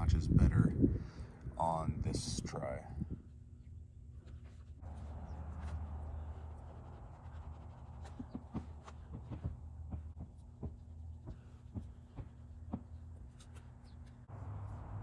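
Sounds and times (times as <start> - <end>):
low steady hum: 0.0 - 15.0
cloth rubbing on car trim: 5.6 - 9.5.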